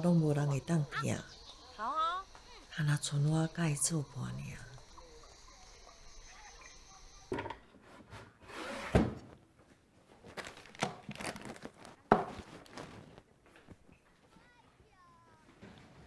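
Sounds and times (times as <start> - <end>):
drawers and cupboard doors thumping: 7.3 - 9.3.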